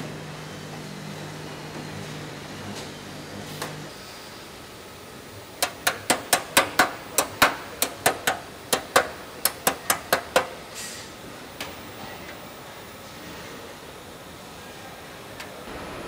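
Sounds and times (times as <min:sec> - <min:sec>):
hammer striking metal panel: 0:05.6 - 0:10.6.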